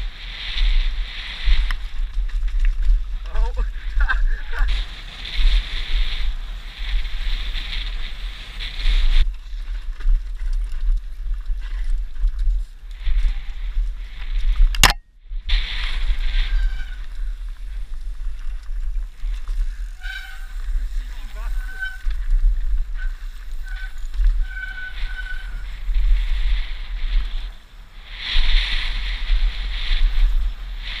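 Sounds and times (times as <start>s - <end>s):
bike rattling and ticking: 0.0s - 31.0s
tyres on dirt trail: 0.0s - 31.0s
wind buffeting microphone: 0.0s - 31.0s
short high squeals: 16.3s - 17.3s, 19.9s - 22.2s, 23.0s - 25.7s.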